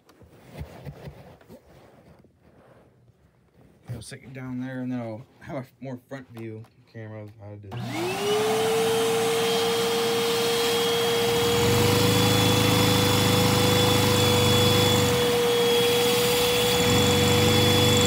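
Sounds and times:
vacuum cleaner whine: 7.7s - 18.0s
small engine running roughly: 10.7s - 18.0s.

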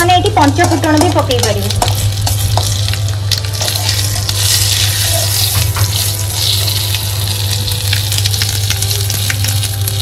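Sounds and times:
spices sizzling in hot oil: 0.0s - 10.0s
spatula scraping and tapping pan: 0.3s - 4.0s.

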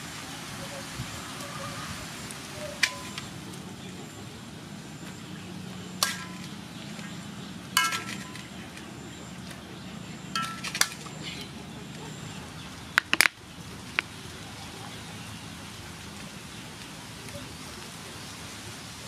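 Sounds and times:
frying hiss: 0.0s - 19.0s
metal spatula clanking on wok: 6.0s - 6.6s, 7.8s - 8.5s, 10.3s - 11.1s.

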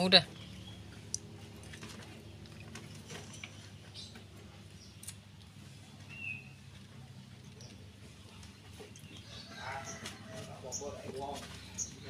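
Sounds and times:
low steady hum: 0.0s - 12.0s
monkey slurping water: 0.4s - 3.8s, 4.4s - 9.3s.

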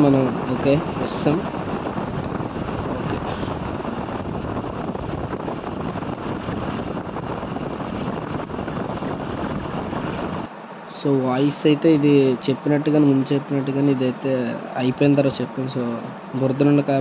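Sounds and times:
motorcycle riding: 0.0s - 10.5s
wind rushing on microphone: 0.0s - 10.5s.

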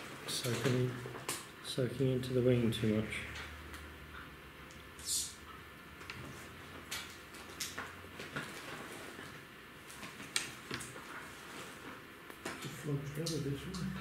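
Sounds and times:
small clicks and taps: 6.8s - 8.5s.

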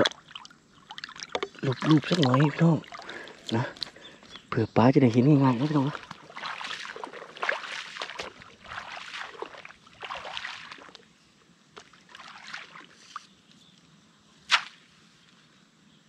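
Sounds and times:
wading through water: 0.0s - 13.5s
sharp slap: 14.5s - 14.9s.

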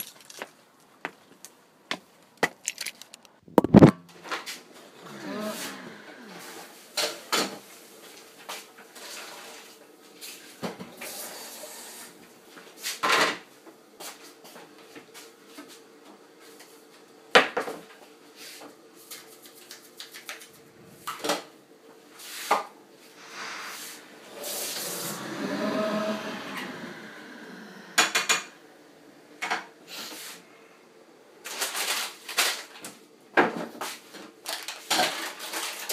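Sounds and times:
faint steady hum: 13.5s - 34.8s
longer pitched sound: 23.2s - 29.2s.

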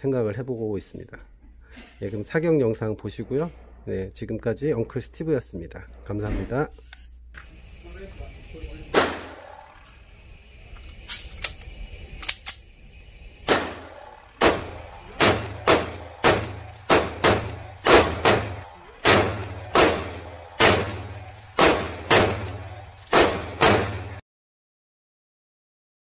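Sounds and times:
pistol shots indoors: 8.9s - 9.9s, 13.4s - 24.2s.

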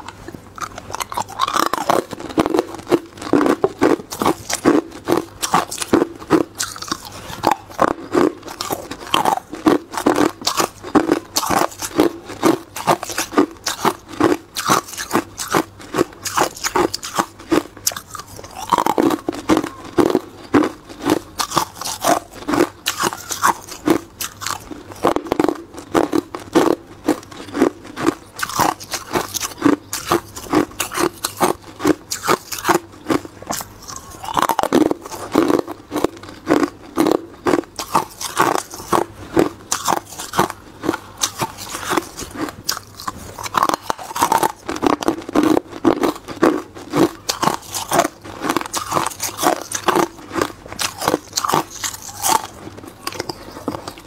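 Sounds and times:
ice cubes crunching: 0.6s - 54.0s.

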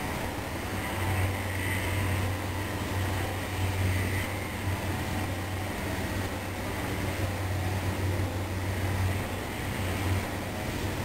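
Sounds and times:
distant electric train hum: 0.0s - 11.0s.

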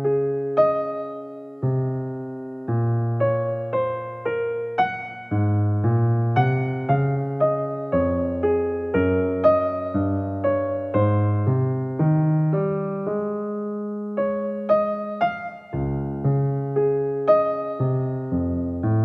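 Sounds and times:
gentle piano music: 0.0s - 19.0s.

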